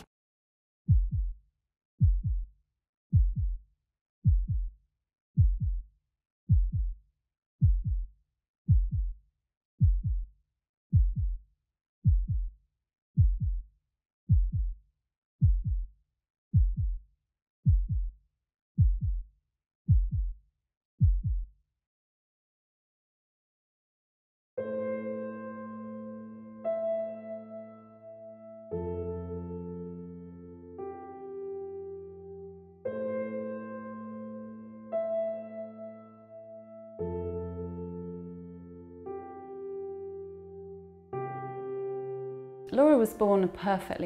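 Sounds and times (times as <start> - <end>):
heartbeat thumps: 0.9 - 1.4, 2.0 - 2.5, 3.1 - 3.6, 4.2 - 4.7, 5.4 - 5.8, 6.5 - 7.0, 7.6 - 8.1, 8.7 - 9.2, 9.8 - 10.3, 10.9 - 11.4, 12.1 - 12.5, 13.2 - 13.6, 14.3 - 14.8, 15.4 - 15.9, 16.6 - 17.0, 17.7 - 18.1, 18.8 - 19.3, 19.9 - 20.4, 21.0 - 21.5.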